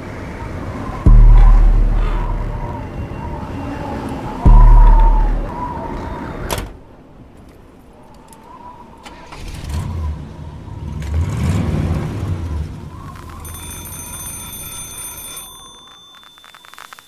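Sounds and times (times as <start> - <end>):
low pulsing rumble: 1.0 - 3.6, 4.4 - 5.8
faint steady high tone: 13.4 - 17.0.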